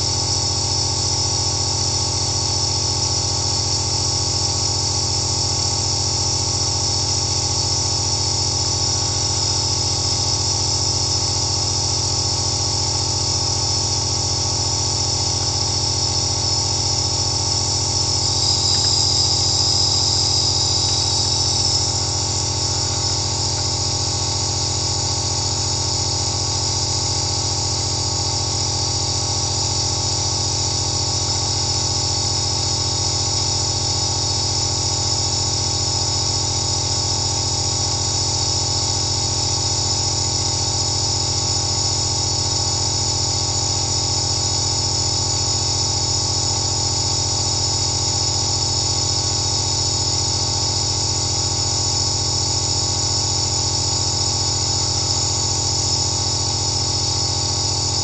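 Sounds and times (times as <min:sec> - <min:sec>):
nebulizer motor hum: 0:00.0 - 0:58.0
air hissing through mask: 0:15.0 - 0:24.6.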